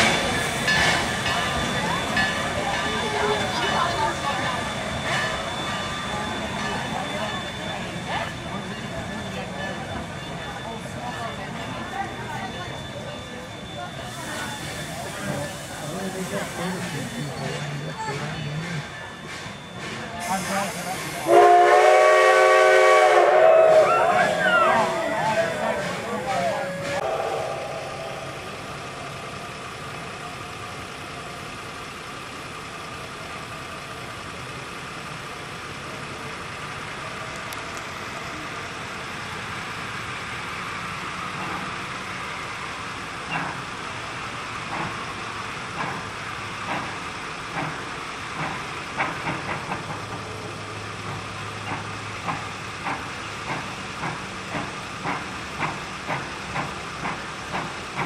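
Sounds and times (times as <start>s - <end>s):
steam locomotive hiss: 0.0s - 30.6s
steam locomotive exhaust chuffs: 0.0s - 58.0s.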